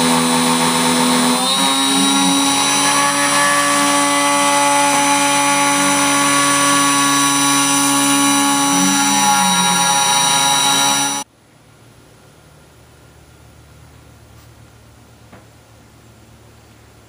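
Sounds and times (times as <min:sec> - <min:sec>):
router spindle whining cutting wood: 0:00.0 - 0:11.3.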